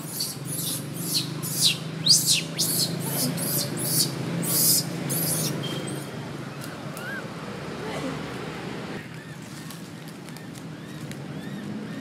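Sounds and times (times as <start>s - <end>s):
baby monkey screaming: 0.0s - 5.7s, 6.7s - 7.3s.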